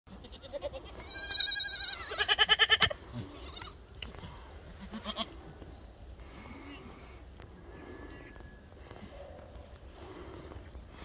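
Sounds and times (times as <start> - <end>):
goats bleating: 0.1 - 3.8, 4.7 - 5.4.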